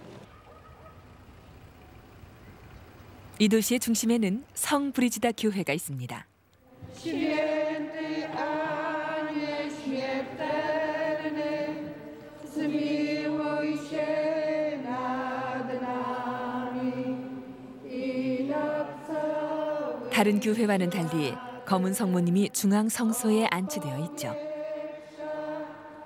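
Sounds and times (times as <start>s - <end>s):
women singing a hymn: 6.6s - 26.0s.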